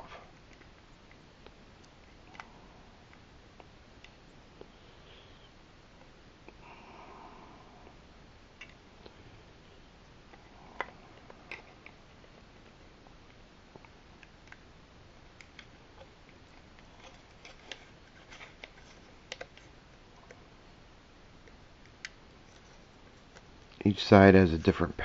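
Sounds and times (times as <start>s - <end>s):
small plastic parts clicking: 15.4s - 20.4s.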